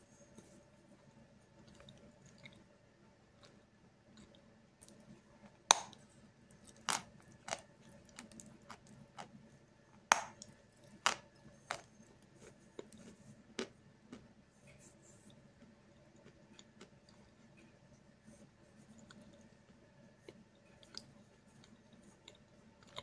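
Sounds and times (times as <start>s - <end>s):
teeth crunching chalk: 5.7s - 9.4s, 10.1s - 14.3s.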